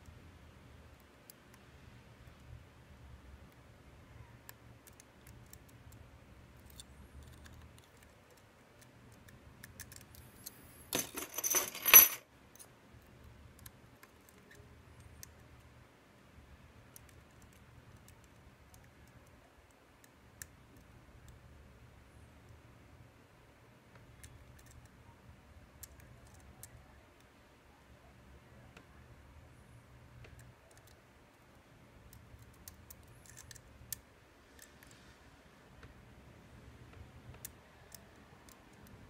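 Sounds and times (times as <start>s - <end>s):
metallic jingle: 10.9s - 12.2s.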